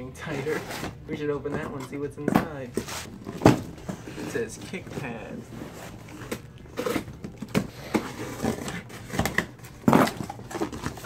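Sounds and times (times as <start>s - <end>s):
cardboard flaps scraping and rustling: 2.7s - 11.0s
scissors cutting cardboard box: 5.5s - 11.0s.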